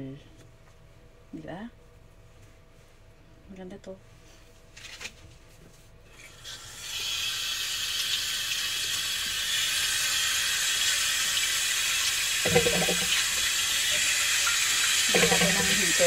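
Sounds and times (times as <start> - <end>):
water running into a basin: 6.3 - 16.0.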